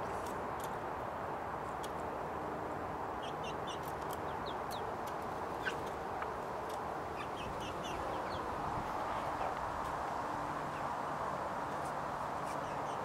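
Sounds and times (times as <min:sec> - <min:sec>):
chicks peeping: 0:03.2 - 0:06.0, 0:06.6 - 0:09.6.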